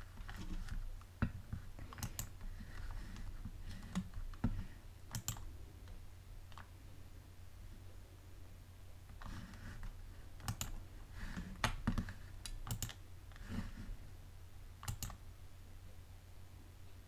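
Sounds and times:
steady low hum: 0:00.0 - 0:17.0
computer keys clicking: 0:01.8 - 0:02.4, 0:03.2 - 0:04.4, 0:05.1 - 0:06.7, 0:10.4 - 0:10.8, 0:11.6 - 0:13.0, 0:14.8 - 0:15.2.

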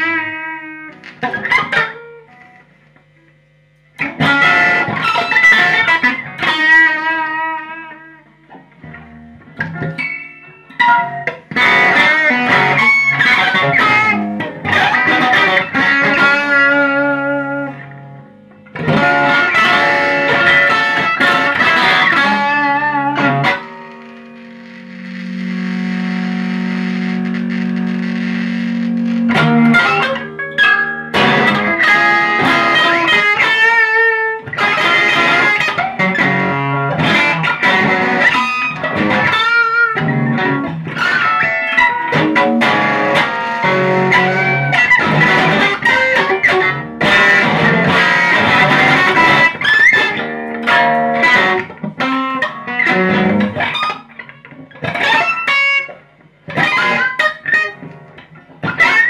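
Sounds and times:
electric guitar playing solo: 0:00.0 - 0:59.0.

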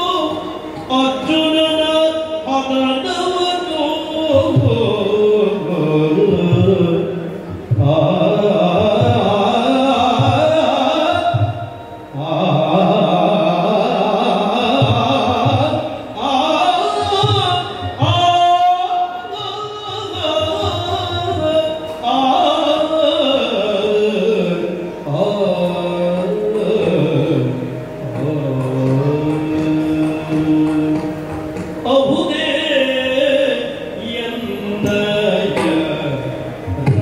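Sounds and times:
man singing: 0:00.0 - 0:37.0
drum strokes: 0:34.8 - 0:37.0.

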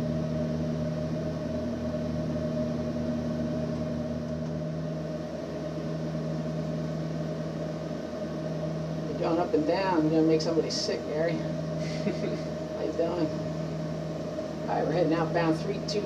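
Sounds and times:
low throbbing pulse: 0:00.0 - 0:16.0
propeller aircraft engine drone: 0:00.0 - 0:16.0.

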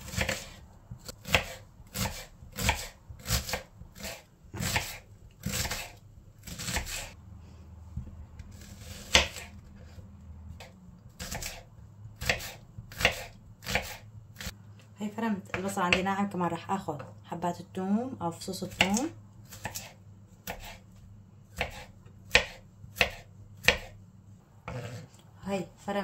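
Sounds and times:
knife chopping on wooden board: 0:00.1 - 0:07.2, 0:08.5 - 0:10.0, 0:10.6 - 0:14.5, 0:18.7 - 0:20.8, 0:21.5 - 0:24.0.

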